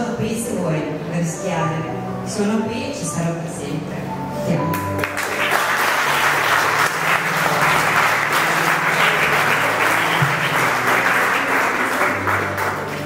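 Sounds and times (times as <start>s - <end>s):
crowd applauding: 4.9s - 13.0s.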